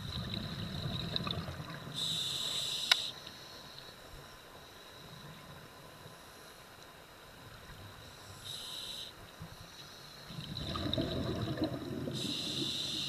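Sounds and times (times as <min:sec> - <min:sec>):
exhaled bubbles burbling: 0:00.0 - 0:02.0, 0:10.3 - 0:12.8
regulator inhalation hiss: 0:01.9 - 0:03.6, 0:08.3 - 0:10.3, 0:12.0 - 0:13.0.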